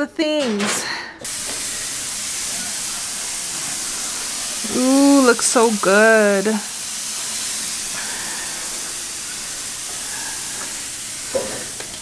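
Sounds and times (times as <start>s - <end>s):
chicken sizzling on grill: 1.3s - 12.0s.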